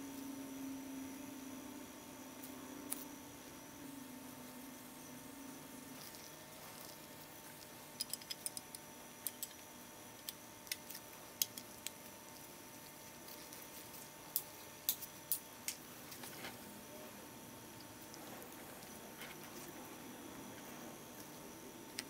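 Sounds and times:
small metal parts clicking: 7.6 - 9.6.

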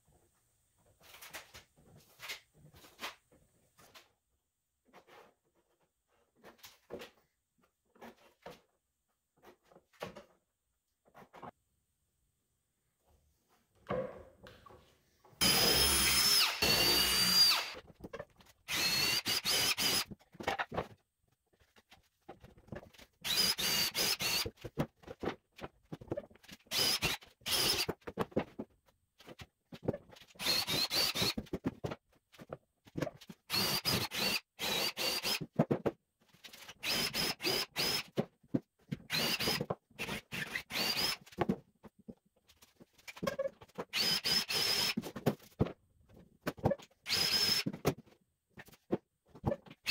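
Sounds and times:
cordless drill whining into wood: 15.4 - 17.8, 18.7 - 20.1, 23.2 - 24.5, 26.7 - 27.9, 30.4 - 31.4, 33.5 - 35.4, 36.8 - 38.2, 39.1 - 41.3, 43.9 - 45.0, 47.1 - 47.7.

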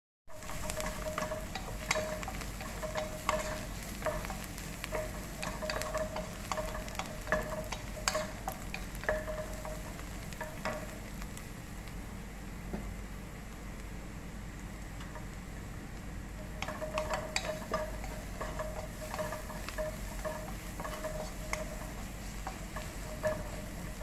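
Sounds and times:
low sizzle: 0.3 - 24.0
spatula scraping a pot: 0.4 - 10.0, 16.6 - 24.0.

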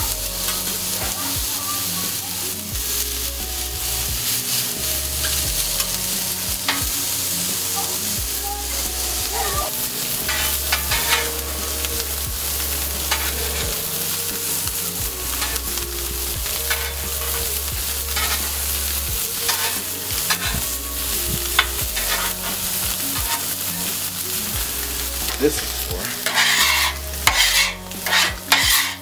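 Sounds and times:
food sizzling on griddle: 0.0 - 29.0
metal spatulas scraping and clacking: 10.0 - 11.5, 13.0 - 14.6, 16.7 - 17.4, 18.2 - 18.7, 19.4 - 20.6, 21.6 - 24.0, 25.3 - 29.0.

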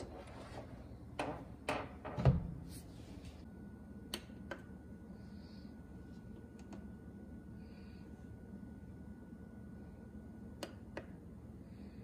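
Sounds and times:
faint high whine: 3.1 - 12.0.

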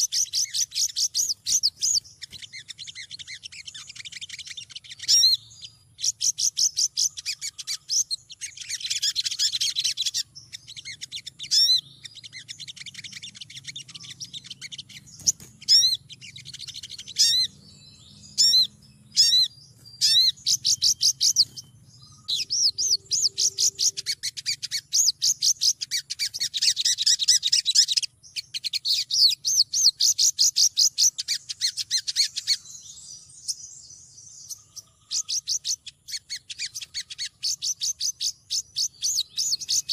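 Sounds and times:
sharp bird chirps: 0.0 - 39.9
sunbird twittering: 0.0 - 39.9.

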